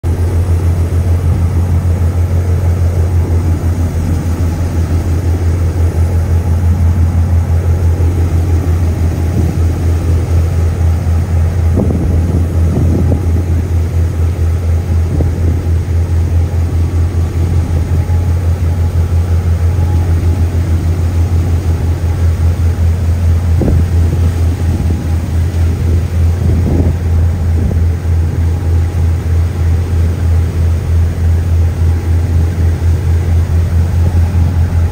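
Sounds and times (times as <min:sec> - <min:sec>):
rushing wind and water: 0:00.0 - 0:34.9
ship engines droning: 0:00.0 - 0:34.9.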